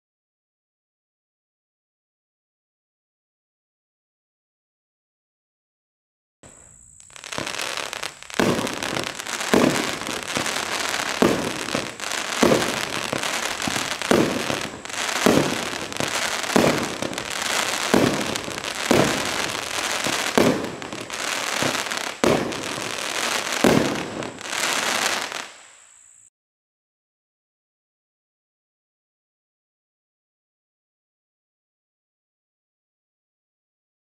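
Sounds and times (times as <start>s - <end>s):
firework bangs: 6.4s - 25.8s
firework crackling: 6.4s - 26.2s.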